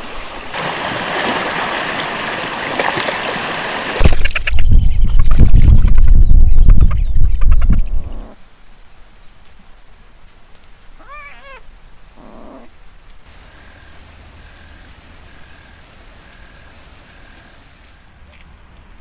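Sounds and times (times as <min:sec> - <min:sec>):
wild cat meowing: 0:11.0 - 0:12.7.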